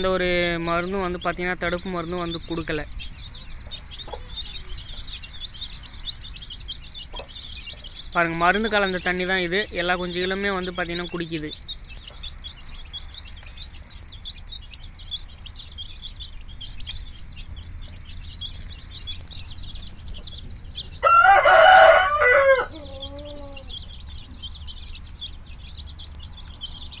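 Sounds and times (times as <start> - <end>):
chicks peeping: 0.0 - 27.0
rooster crowing: 21.0 - 23.8.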